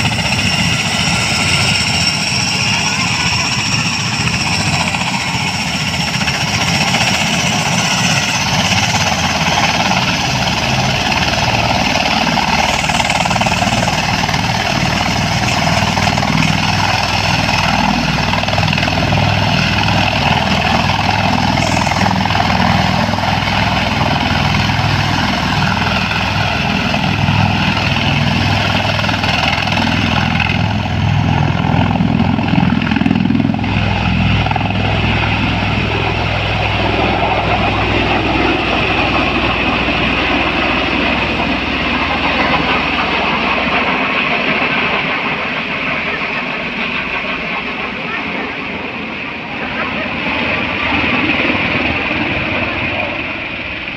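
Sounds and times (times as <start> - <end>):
aircraft engines and rotors running: 0.0 - 53.9.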